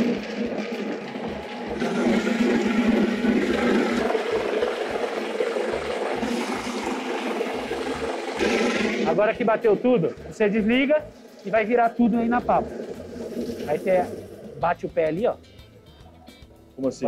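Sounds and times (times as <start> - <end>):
blender motor humming: 0.0 - 9.3
liquid sloshing: 0.0 - 15.0.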